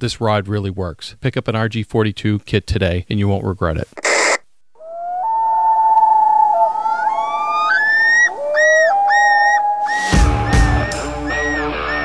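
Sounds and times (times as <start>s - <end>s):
siren-like wail: 4.8s - 12.0s.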